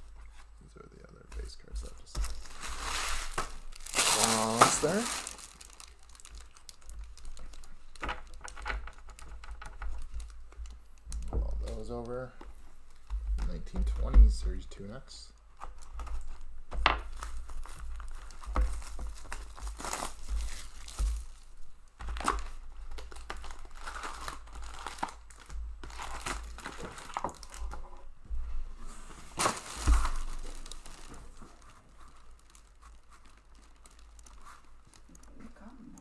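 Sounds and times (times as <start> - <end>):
foil packs crinkling: 2.0 - 10.8, 15.7 - 27.8, 29.2 - 35.7
plastic wrap tearing: 2.2 - 10.6, 15.8 - 27.8, 29.3 - 35.4.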